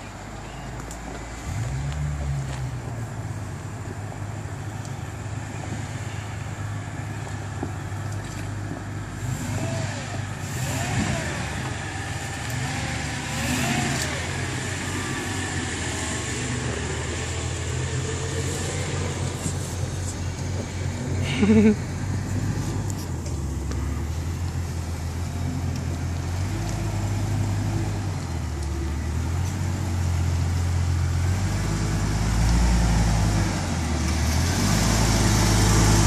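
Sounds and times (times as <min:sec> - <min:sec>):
engine revving under load: 0:09.1 - 0:36.0.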